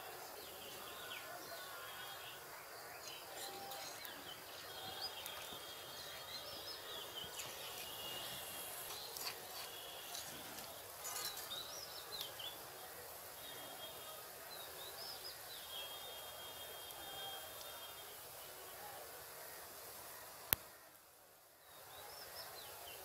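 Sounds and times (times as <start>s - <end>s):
faint outdoor background noise: 0.0s - 23.0s
small birds chirping: 0.3s - 17.9s.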